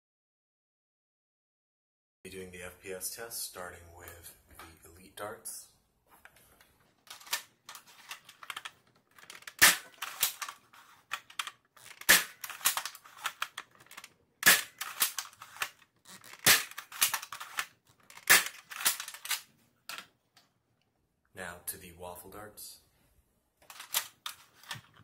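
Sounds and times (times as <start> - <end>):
toy blaster shots: 9.4 - 10.5, 11.9 - 13.4, 14.4 - 15.7, 16.3 - 19.4.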